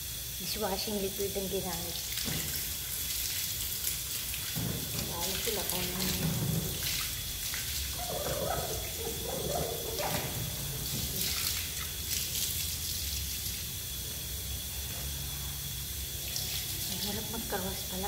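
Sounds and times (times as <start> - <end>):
water running: 0.0 - 18.0.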